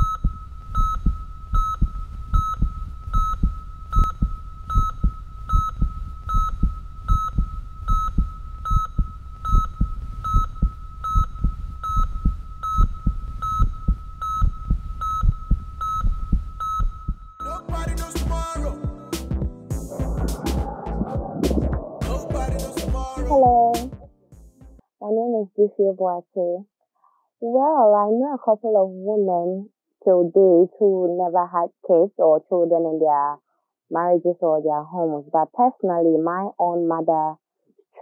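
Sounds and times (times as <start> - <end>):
monitor electronic beep: 0.0 - 24.0
rapid low heartbeat thumping: 0.0 - 24.8.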